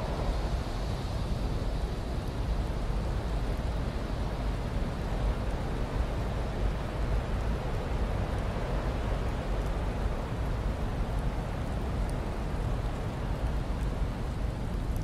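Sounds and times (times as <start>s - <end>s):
blizzard wind blowing: 0.0s - 4.6s.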